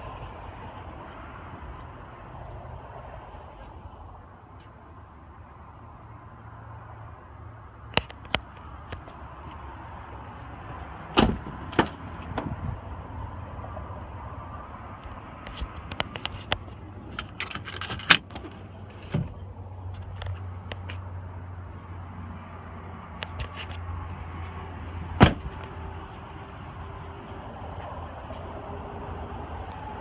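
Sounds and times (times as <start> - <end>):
truck door clicks and knocks: 11.1 - 12.6, 25.2 - 25.6.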